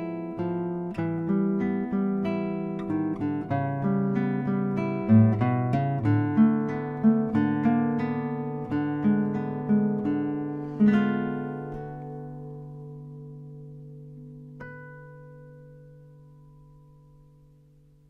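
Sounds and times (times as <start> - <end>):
acoustic guitar playing: 0.0 - 18.0.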